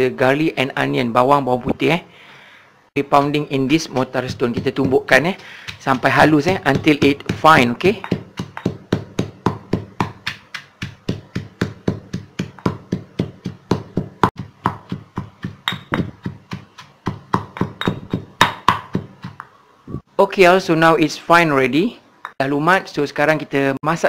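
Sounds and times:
pestle pounding in stone mortar: 0:03.0 - 0:19.5.

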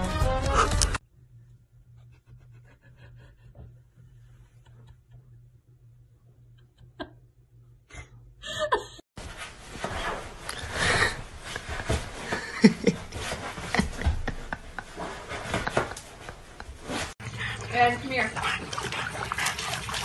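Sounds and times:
person laughing: 0:12.3 - 0:16.8.

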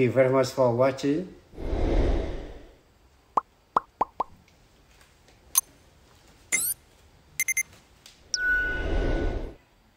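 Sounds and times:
short rising swish: 0:01.6 - 0:02.8.

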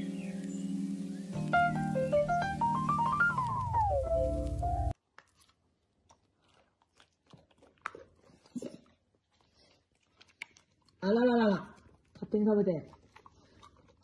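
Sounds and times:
background music: 0:00.0 - 0:05.0
monkey chewing food: 0:04.4 - 0:14.0.

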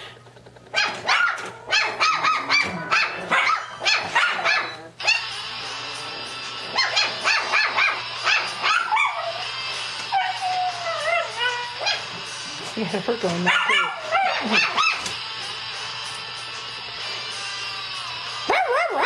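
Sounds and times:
dog barking and yipping: 0:00.7 - 0:05.4, 0:06.7 - 0:09.5, 0:10.1 - 0:12.2, 0:13.4 - 0:15.2, 0:18.5 - 0:19.0.

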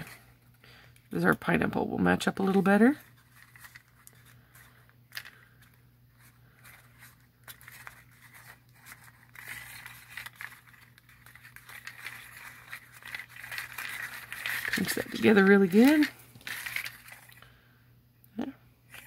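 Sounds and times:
low steady hum: 0:00.0 - 0:19.0
paper rustling and crinkling: 0:02.2 - 0:17.4.

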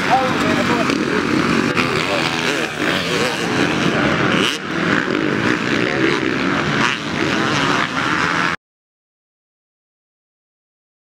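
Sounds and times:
racing motorcycle engines: 0:00.0 - 0:08.6.

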